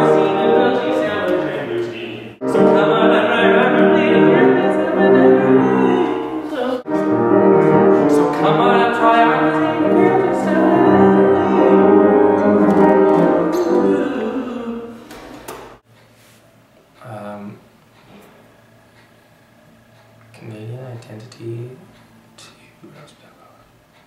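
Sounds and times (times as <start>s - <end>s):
man singing: 0.0s - 15.0s
upright piano accompaniment: 0.0s - 15.8s.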